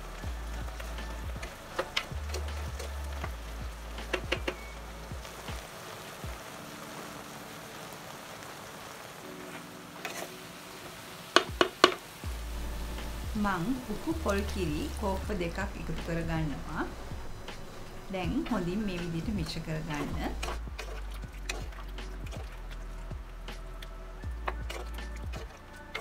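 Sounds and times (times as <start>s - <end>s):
curry sizzling in a pot: 0.0s - 26.0s
spoon knocking against pot: 11.4s - 12.0s.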